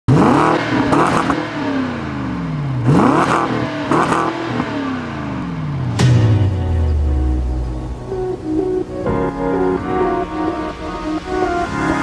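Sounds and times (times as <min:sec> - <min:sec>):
car engine revving: 0:00.1 - 0:09.1.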